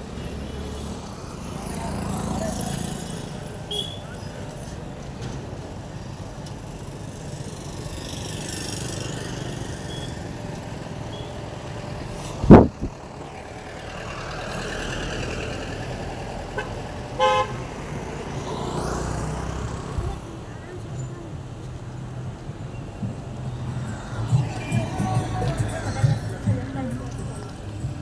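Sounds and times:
roadside traffic noise: 0:00.0 - 0:28.0
vehicle horn toot: 0:03.7 - 0:04.2, 0:16.6 - 0:17.6.

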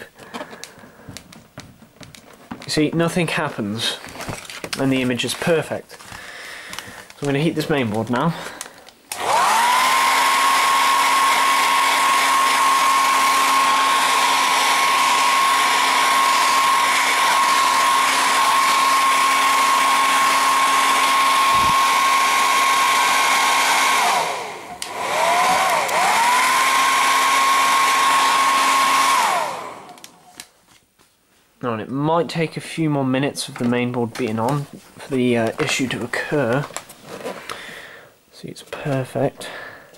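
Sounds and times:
hair dryer blowing: 0:07.2 - 0:30.3.

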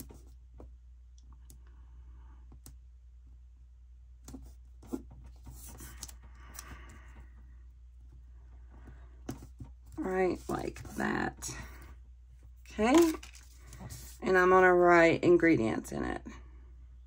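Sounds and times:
paper rustling: 0:12.8 - 0:14.2.

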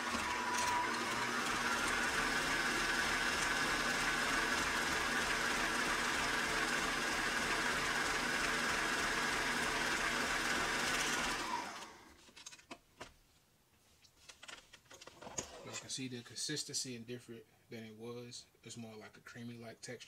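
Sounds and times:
stand mixer motor running: 0:00.0 - 0:12.1.

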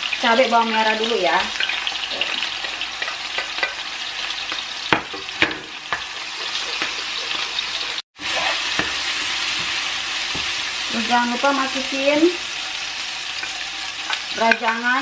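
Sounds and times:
chicken sizzling in a frying pan: 0:00.0 - 0:15.0
spatula scraping a pan: 0:05.2 - 0:10.5.

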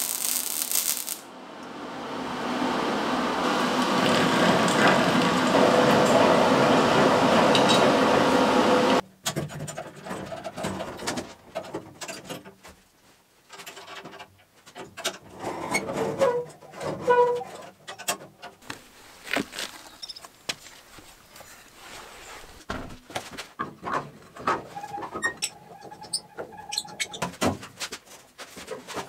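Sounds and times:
loud steady mechanical noise: 0:00.0 - 0:09.0.

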